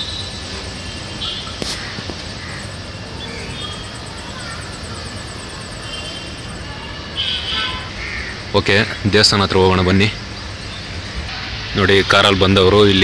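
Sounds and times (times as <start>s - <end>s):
high-pitched chirping: 2.6s - 7.9s
steady rushing noise: 8.4s - 13.0s.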